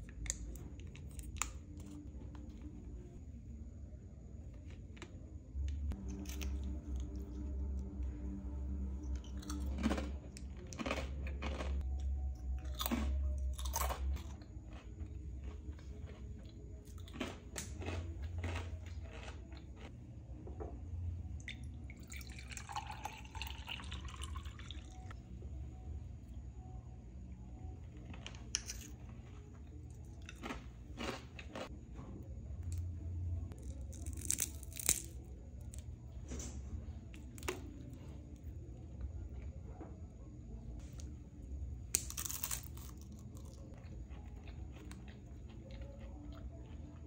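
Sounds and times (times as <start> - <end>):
person chewing crunchy snack: 9.0 - 12.0, 12.6 - 19.9, 28.2 - 31.7, 33.5 - 35.8, 41.9 - 47.0.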